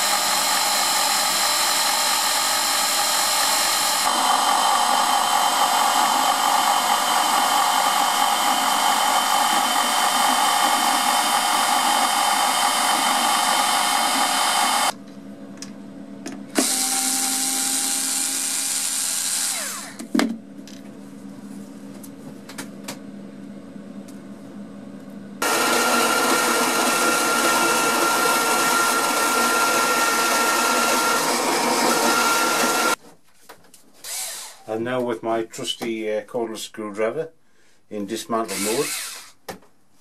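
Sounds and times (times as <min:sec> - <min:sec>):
small motor winding down: 0:00.0 - 0:14.9, 0:16.6 - 0:20.0, 0:25.4 - 0:33.0, 0:38.5 - 0:39.3
router spindle milling plastic: 0:00.0 - 0:15.0, 0:16.5 - 0:20.1, 0:25.4 - 0:33.0, 0:38.5 - 0:39.2.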